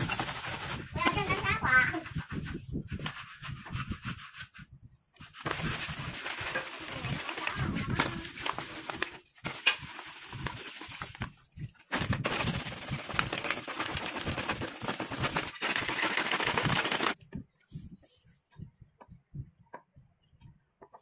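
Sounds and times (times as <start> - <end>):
sandpaper rasping on wood: 0.0 - 4.6, 5.2 - 11.2.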